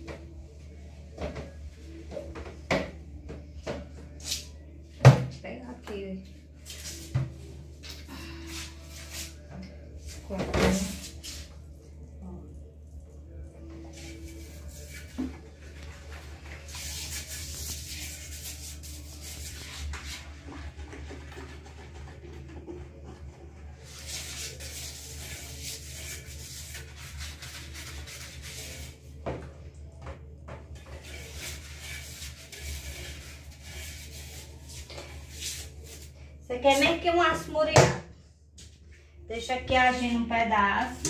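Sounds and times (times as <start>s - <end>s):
scrubbing toilet bowl: 13.8s - 29.2s, 30.7s - 37.2s.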